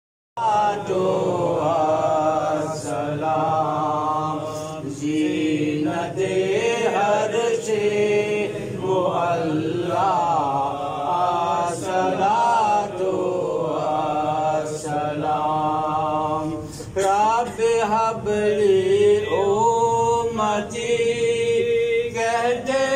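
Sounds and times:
man chanting into a microphone: 14.3 - 22.9.

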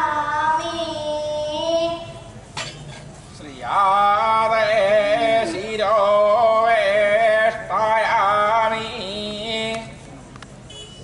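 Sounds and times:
man chanting into a microphone: 3.5 - 10.0.

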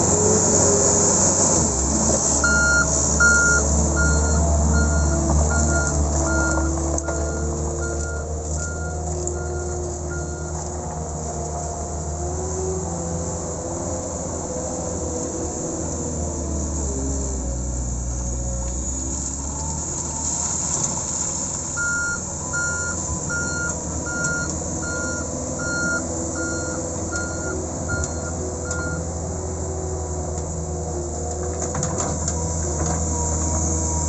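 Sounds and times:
loader engine running: 0.0 - 34.0
reverse alarm beeps: 2.4 - 10.5, 21.8 - 29.0.

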